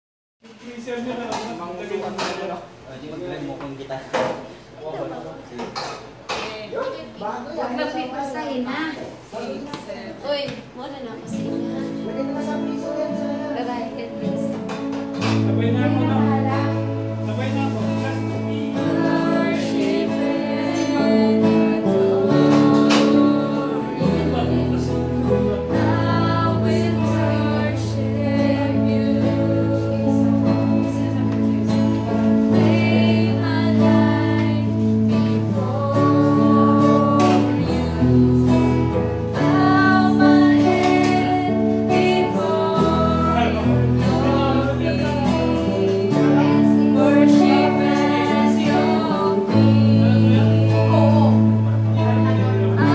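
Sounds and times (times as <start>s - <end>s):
strummed acoustic guitar: 11.2s - 52.9s
women singing: 11.3s - 52.9s
keyboard bass notes: 12.0s - 52.9s.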